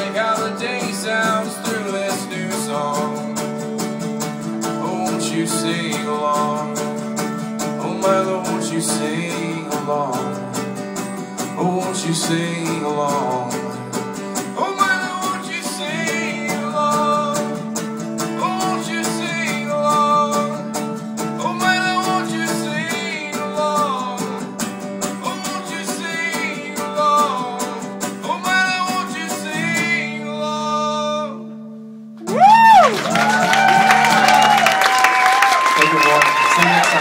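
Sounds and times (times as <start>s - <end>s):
man singing wordless melody: 0.0s - 3.7s, 4.5s - 10.8s, 11.4s - 31.7s
strummed acoustic guitar: 0.0s - 37.0s
audience cheering and applauding: 32.2s - 37.0s.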